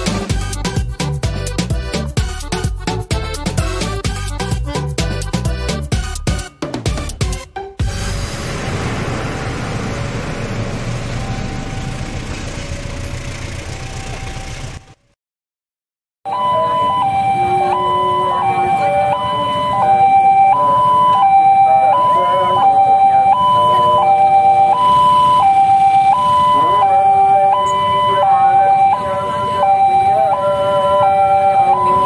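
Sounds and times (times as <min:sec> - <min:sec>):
level crossing two-tone alarm: 0:16.3 - 0:32.0.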